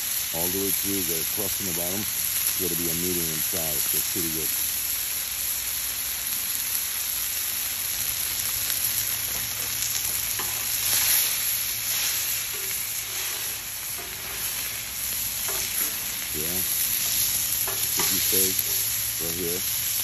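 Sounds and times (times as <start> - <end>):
steak sizzling in a pan: 0.0 - 20.0.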